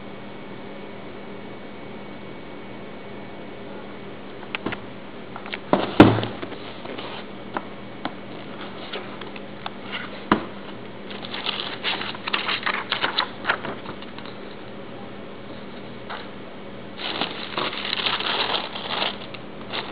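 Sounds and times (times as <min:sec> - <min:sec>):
cardboard box knock: 0:05.7 - 0:06.4
tissue paper rustling: 0:11.1 - 0:14.4, 0:17.0 - 0:19.9.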